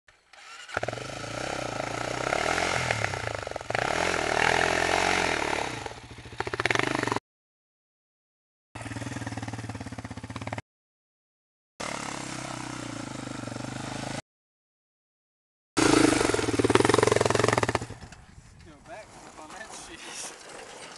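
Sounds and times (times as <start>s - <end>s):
atv engine revving: 0.3s - 7.2s, 8.8s - 10.6s, 11.8s - 14.2s, 15.8s - 18.2s.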